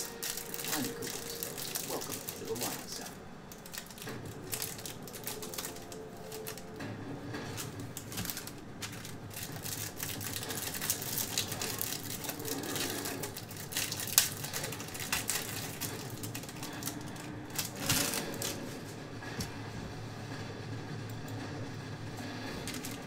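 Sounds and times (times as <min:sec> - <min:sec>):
trading cards clicking and snapping: 0:00.0 - 0:18.7.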